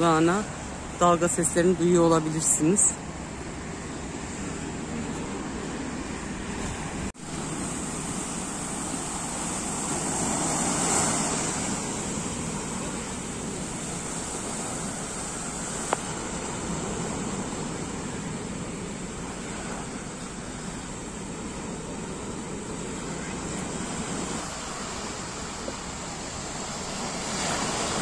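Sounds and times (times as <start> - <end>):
sea waves breaking on shore: 0.0 - 28.0.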